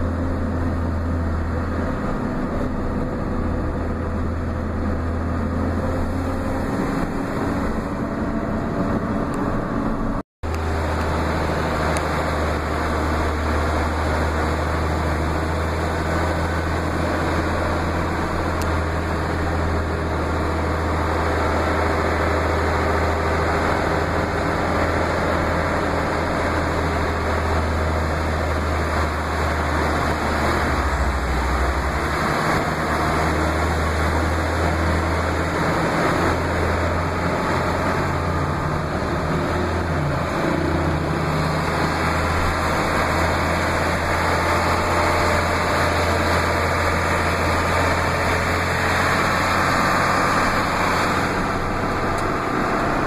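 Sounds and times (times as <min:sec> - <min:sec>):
road noise: 0:00.0 - 0:53.0
truck engine droning: 0:00.0 - 0:53.0.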